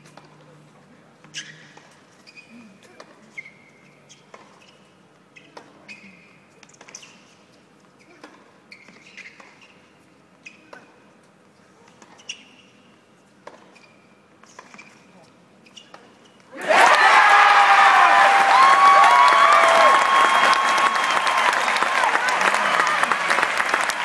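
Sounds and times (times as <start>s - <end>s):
shoes squeaking on court: 1.2s - 16.5s.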